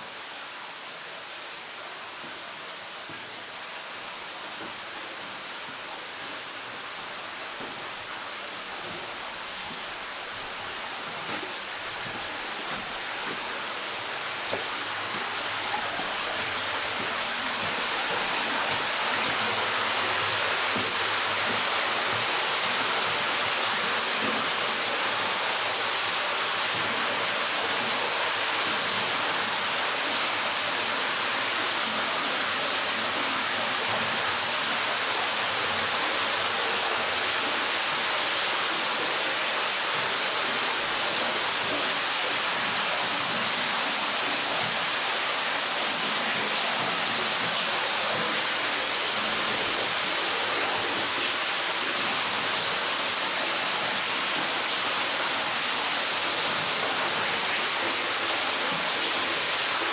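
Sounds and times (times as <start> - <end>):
underground waterfall rushing: 0.0 - 59.9.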